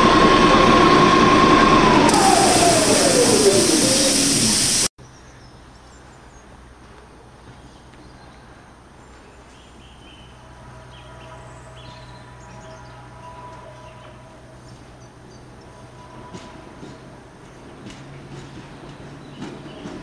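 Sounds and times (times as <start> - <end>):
approaching train whine: 0.0 - 4.9
train hiss with falling whine: 0.0 - 4.9.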